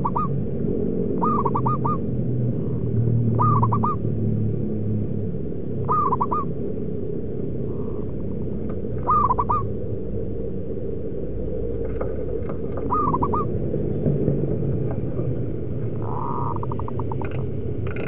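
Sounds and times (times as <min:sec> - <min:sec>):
dove cooing: 0:00.0 - 0:00.4, 0:01.2 - 0:04.0, 0:05.8 - 0:06.5, 0:08.9 - 0:09.8, 0:12.0 - 0:13.6, 0:15.2 - 0:17.4
low background noise: 0:00.0 - 0:18.0.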